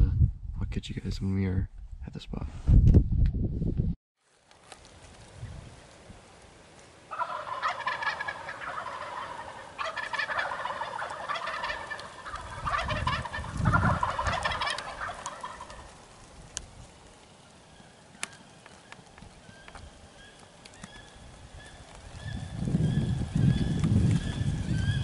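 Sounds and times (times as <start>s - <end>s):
turkeys gobbling: 7.0s - 16.3s, 16.9s - 25.0s.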